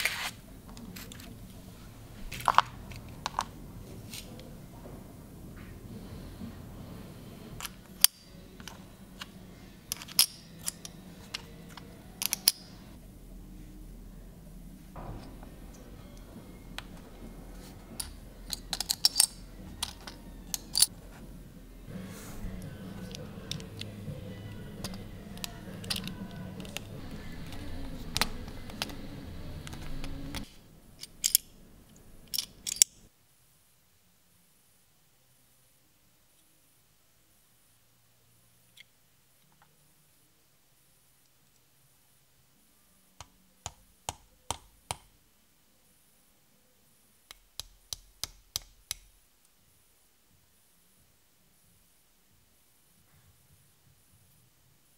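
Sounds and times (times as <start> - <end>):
low steady hum: 0.0 - 47.9
small metal parts clicking: 9.9 - 12.8, 18.0 - 20.9, 24.8 - 29.0, 29.6 - 31.5, 32.2 - 33.0.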